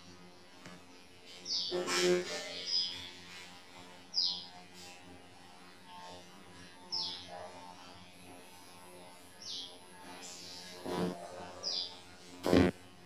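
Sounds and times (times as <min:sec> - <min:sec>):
bird chirping: 0:01.4 - 0:03.1, 0:04.1 - 0:04.5, 0:06.9 - 0:07.2, 0:11.6 - 0:12.0.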